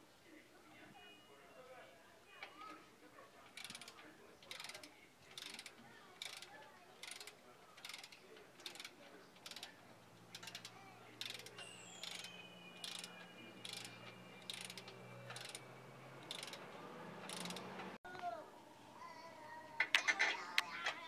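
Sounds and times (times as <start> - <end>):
mechanical clicking: 3.6 - 17.9.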